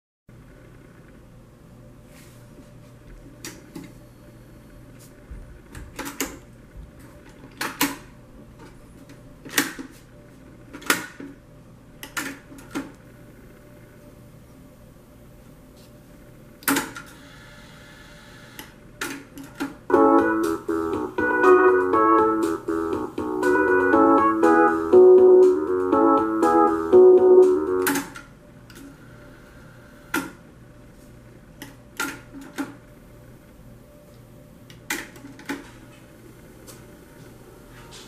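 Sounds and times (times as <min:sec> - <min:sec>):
music playing from tape: 0:19.9 - 0:28.0.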